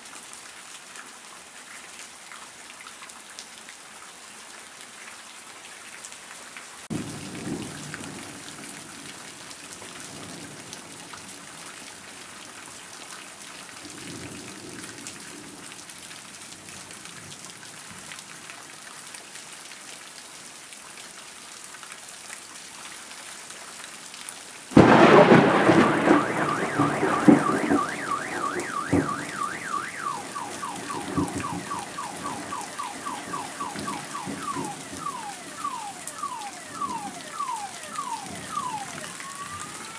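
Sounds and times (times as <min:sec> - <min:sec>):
rain on grass and pavement: 0:00.0 - 0:39.9
loud thunderclap: 0:24.8 - 0:39.6
distant thunder rumbles: 0:24.8 - 0:39.8
car alarm wailing and chirping: 0:24.8 - 0:39.9.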